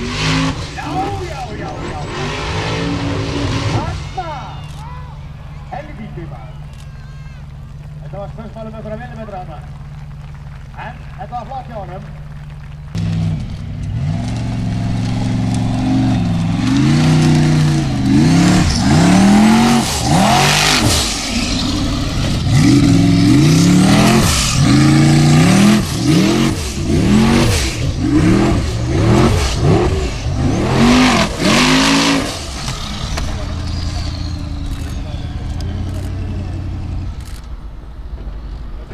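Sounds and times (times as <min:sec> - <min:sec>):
buggy engine revving hard: 0:00.0 - 0:04.5, 0:12.9 - 0:37.2
tyres spinning in loose dirt: 0:00.2 - 0:37.6.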